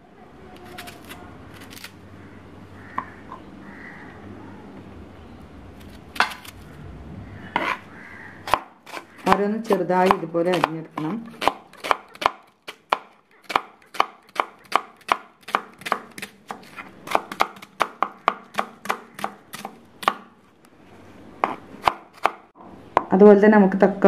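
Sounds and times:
knife chopping on cutting board: 8.5s - 20.3s.

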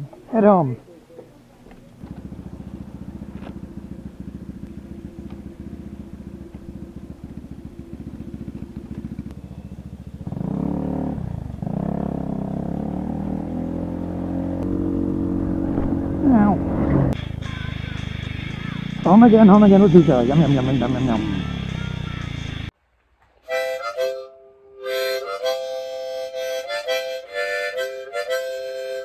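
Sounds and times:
scooter engine idling and revving: 1.9s - 22.7s.

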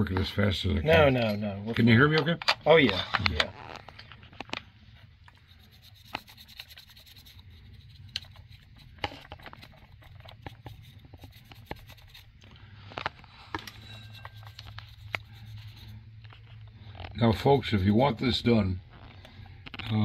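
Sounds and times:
low steady hum: 0.0s - 20.0s
brush scrubbing on metal: 5.4s - 12.4s, 13.8s - 16.1s.

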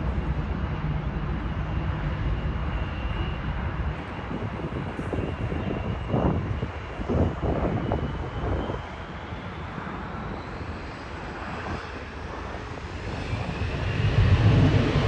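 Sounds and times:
jet engine rumble: 0.0s - 15.0s.

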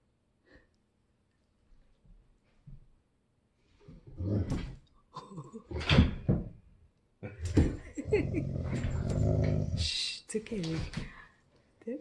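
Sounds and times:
dogs growling and woofing: 3.8s - 4.9s, 7.2s - 9.9s.

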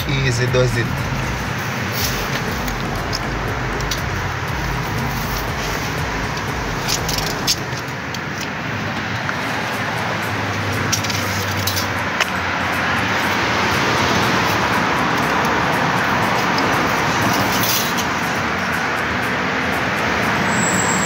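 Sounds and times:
steady rushing noise: 0.0s - 20.5s.

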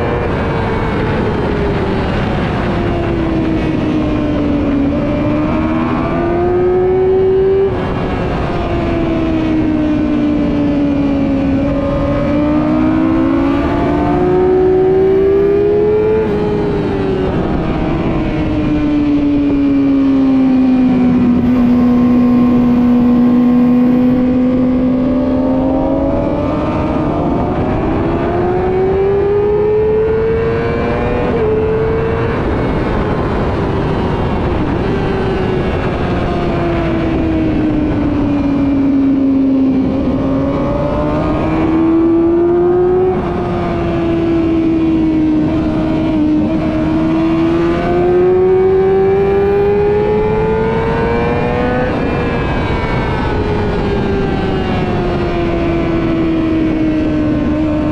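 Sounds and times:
wind rush: 0.0s - 57.9s
sport bike engine revving: 11.4s - 17.7s, 20.1s - 33.0s, 39.1s - 53.0s.

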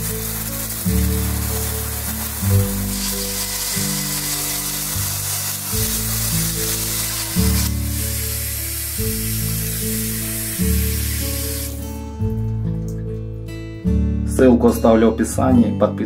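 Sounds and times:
water spraying from shower head: 0.0s - 12.0s
background music with low notes: 0.0s - 16.0s.

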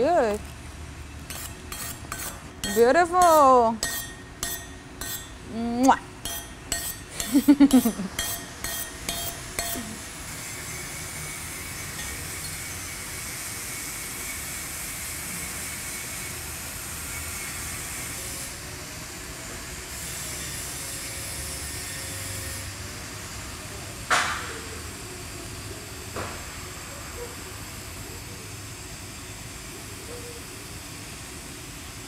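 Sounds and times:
welding arc hissing: 0.0s - 23.8s.

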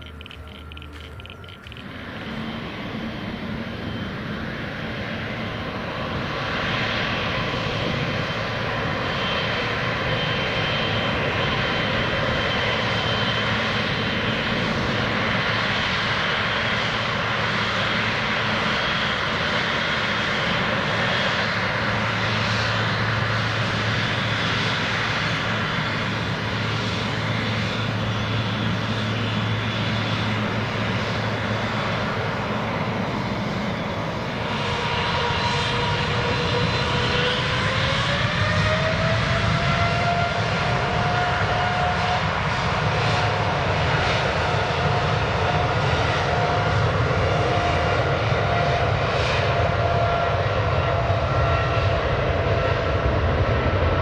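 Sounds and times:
low hum: 0.0s - 5.0s, 20.6s - 37.1s
jet engines running: 0.0s - 54.0s.

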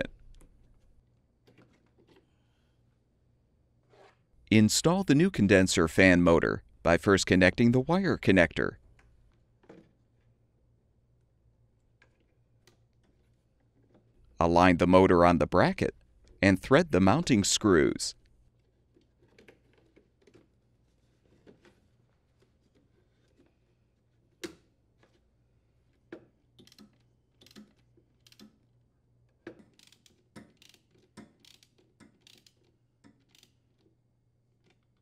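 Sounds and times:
ratchet clicking: 26.6s - 28.6s, 29.7s - 33.6s.

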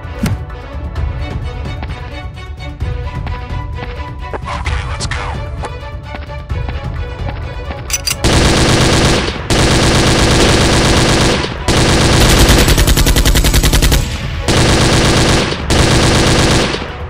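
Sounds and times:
machine gun fire bursts: 8.2s - 17.0s.

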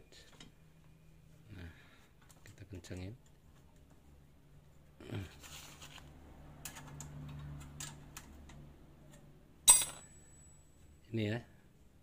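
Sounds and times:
sharp metallic ping: 9.7s - 10.7s.

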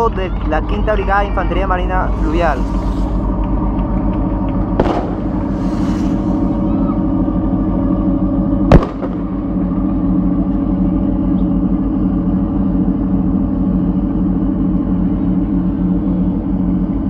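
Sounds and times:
boat engines droning: 0.0s - 17.0s
loud bang: 4.7s - 9.8s.

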